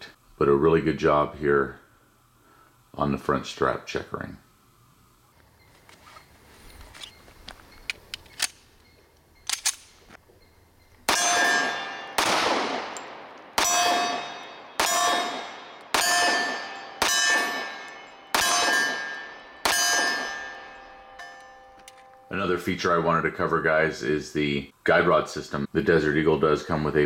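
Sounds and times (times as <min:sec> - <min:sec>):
pistol shots ringing: 0:11.0 - 0:22.3.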